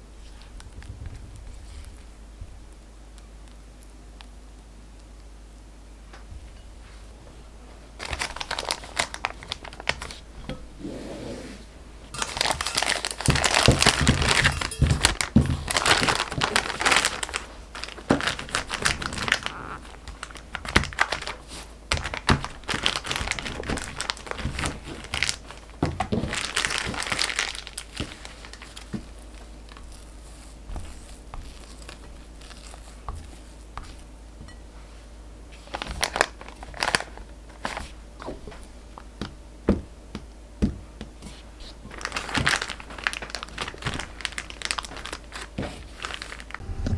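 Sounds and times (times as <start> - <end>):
plastic bag crinkling: 8.0 - 10.4, 12.1 - 34.1, 35.5 - 38.0, 41.7 - 46.6.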